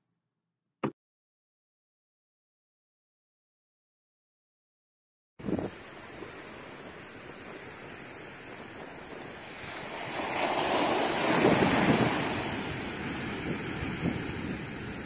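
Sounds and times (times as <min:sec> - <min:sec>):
wave breaking on shore: 0:05.4 - 0:15.0.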